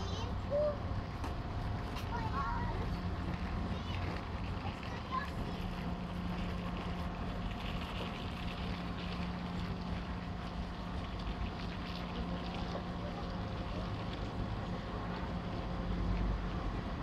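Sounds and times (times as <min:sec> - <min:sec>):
diesel train idling: 0:00.0 - 0:07.6.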